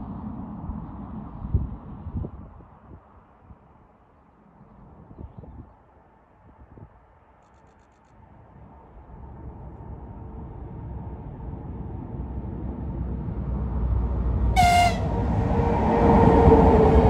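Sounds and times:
train rumbling on rails: 0:08.6 - 0:17.0
high-pitched train horn blast: 0:14.6 - 0:15.4.

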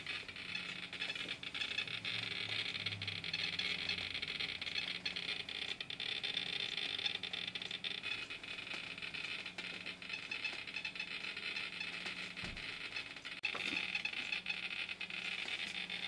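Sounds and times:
rate meter loudspeaker clicking rapidly: 0:00.0 - 0:12.1.

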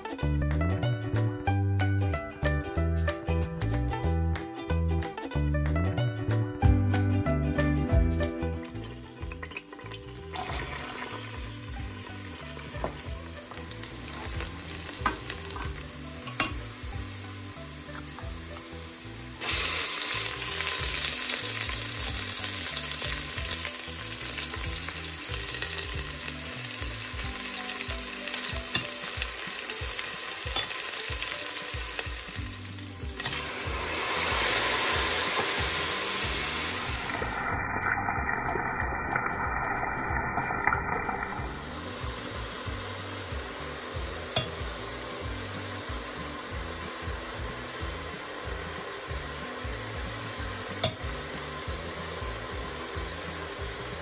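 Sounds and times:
onions sizzling in hot oil: 0:08.2 - 0:54.0
spatula clicking on pan: 0:44.4 - 0:44.6.

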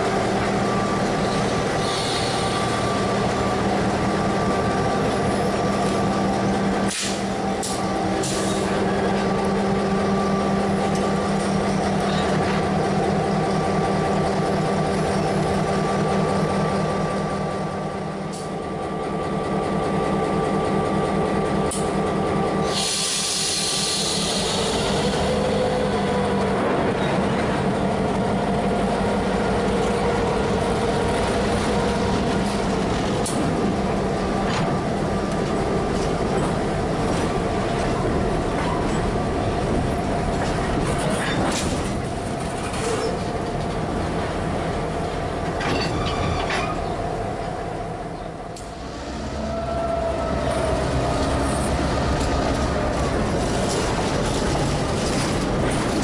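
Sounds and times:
diesel locomotive engine drone: 0:00.0 - 0:56.0
boxcars rolling on steel wheels: 0:50.5 - 0:56.0.

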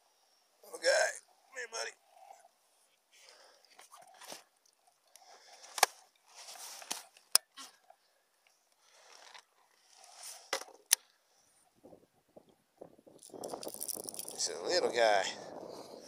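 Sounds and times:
fishing tackle clicks: 0:13.2 - 0:14.5.

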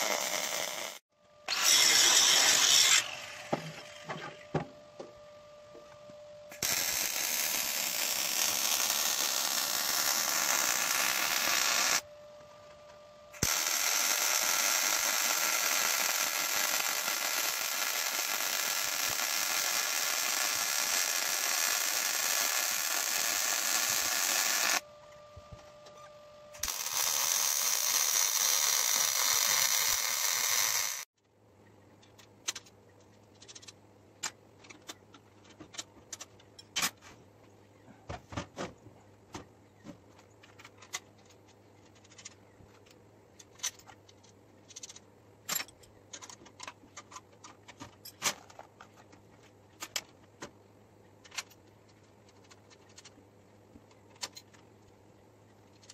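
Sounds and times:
welding arc crackling hiss: 0:00.0 - 0:01.0, 0:06.5 - 0:12.0, 0:13.4 - 0:24.8, 0:26.6 - 0:31.1.

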